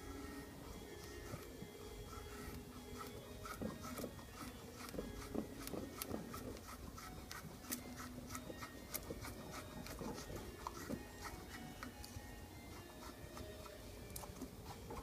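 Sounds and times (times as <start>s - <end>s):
knife scraping wood: 0.8s - 15.0s.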